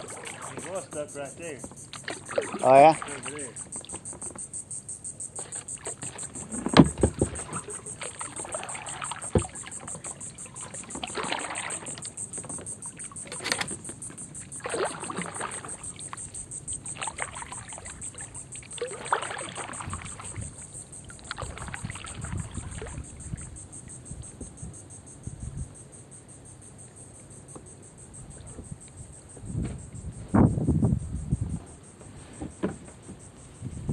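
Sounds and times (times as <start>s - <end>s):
paddle knocking on hull: 0.0s - 4.5s, 5.4s - 23.5s
paddle splashing in water: 0.0s - 4.5s, 5.3s - 24.0s
insect trill: 0.0s - 33.9s.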